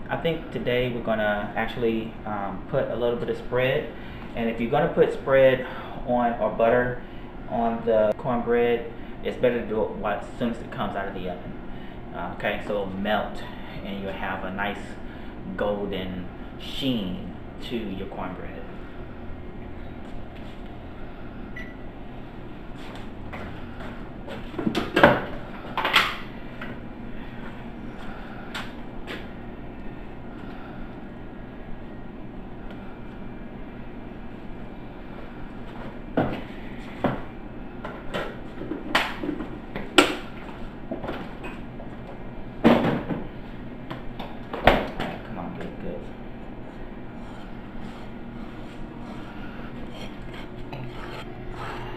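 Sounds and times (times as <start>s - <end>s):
low room noise: 0.0s - 51.9s
steady low hum: 0.0s - 51.9s.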